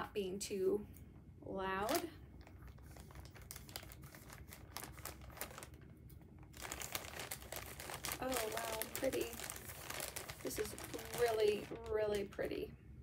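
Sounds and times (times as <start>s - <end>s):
plastic bag crinkling: 1.8s - 12.6s.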